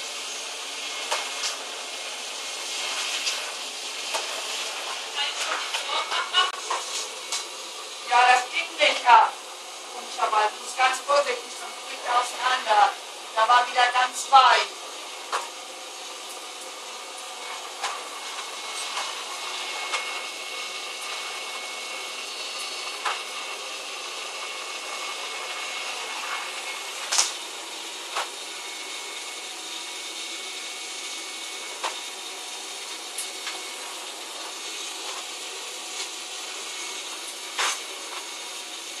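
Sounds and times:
vacuum cleaner running: 0.0 - 39.0.

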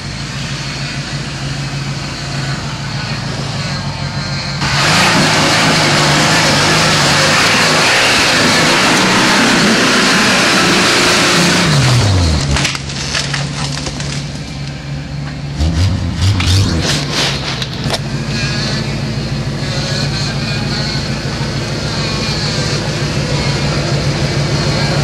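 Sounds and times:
truck engine revving: 0.0 - 25.0
tires cracking over branches: 4.6 - 14.9, 16.2 - 18.8.

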